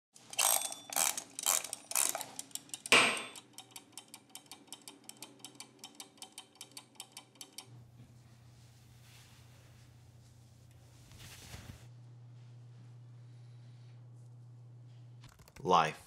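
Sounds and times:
clockwork ticking: 0.2 - 7.7
egg timer dial ratcheting: 0.2 - 7.7
low hum: 7.7 - 15.4.

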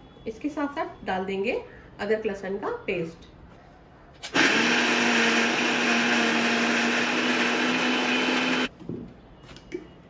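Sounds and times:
mixer grinder motor running: 4.3 - 8.7.

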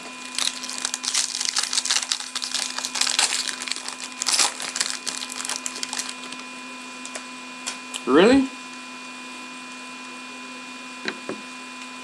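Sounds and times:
foil pack crinkling: 0.0 - 6.4.

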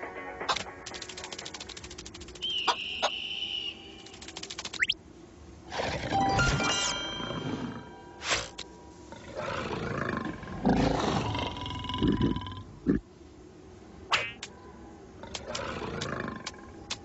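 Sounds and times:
music: 0.0 - 1.6, 6.2 - 7.7
sound-effect hits: 6.1 - 7.5
cartoon animal roaring: 9.2 - 13.0.

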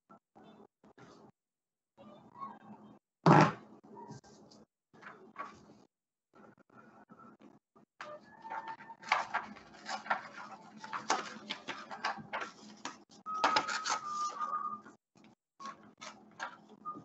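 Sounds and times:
paper rustling and tearing: 8.4 - 14.5.

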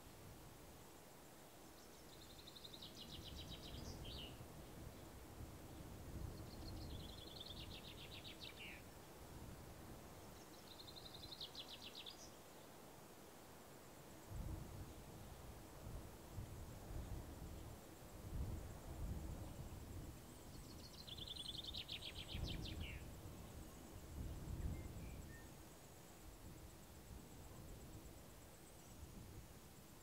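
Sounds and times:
songbird singing: 1.3 - 12.8, 16.4 - 29.2
low wind rumble: 14.2 - 29.7.

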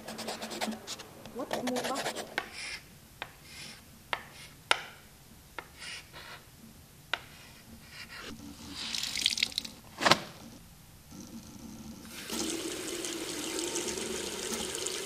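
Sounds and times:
chalk scraping on blackboard: 0.0 - 4.8, 5.6 - 6.5, 7.2 - 8.4
chalk tapping on blackboard: 0.0 - 5.0, 5.6 - 6.4
paper towel dispenser snap: 9.9 - 10.4.

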